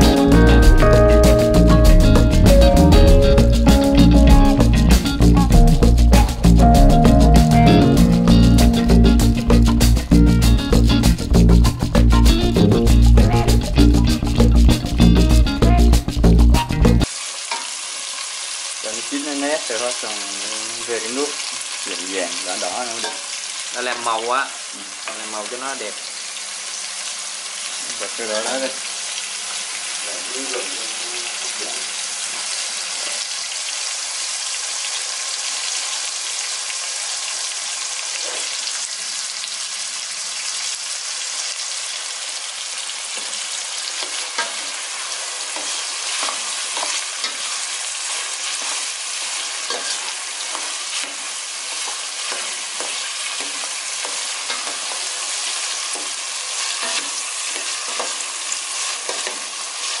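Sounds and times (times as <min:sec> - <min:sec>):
tomatoes sizzling in oil: 0:00.0 - 1:00.0.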